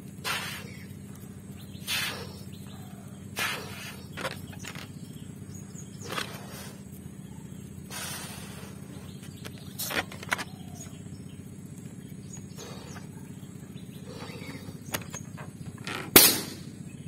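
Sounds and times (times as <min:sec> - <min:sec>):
breath puffs into balloon: 0:00.2 - 0:00.8, 0:01.8 - 0:02.5, 0:03.3 - 0:04.9, 0:06.0 - 0:06.8, 0:07.9 - 0:09.1
handling clicks: 0:09.2 - 0:11.0
balloon bursting bang: 0:16.1 - 0:16.7.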